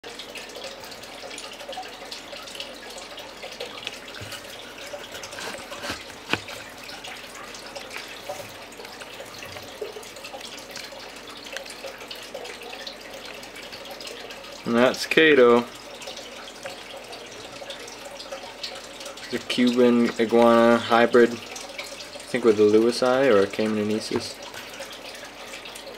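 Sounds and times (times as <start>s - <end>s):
iguana chewing leafy greens: 3.8s - 11.8s.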